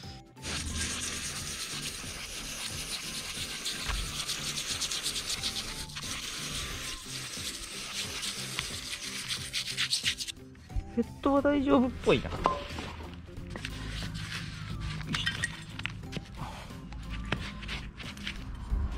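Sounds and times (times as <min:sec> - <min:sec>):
aerosol spray hissing: 0:00.4 - 0:09.2
toothbrush scrubbing metal: 0:00.4 - 0:10.3.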